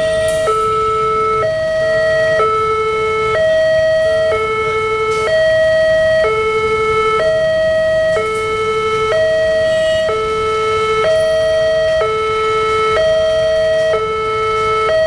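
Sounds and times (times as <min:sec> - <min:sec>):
level crossing two-tone alarm: 0:00.0 - 0:15.0
road traffic noise: 0:00.0 - 0:15.0.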